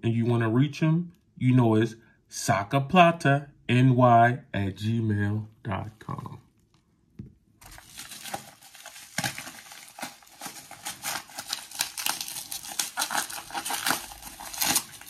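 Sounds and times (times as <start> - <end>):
packaging crinkling and rustling: 7.6 - 15.0.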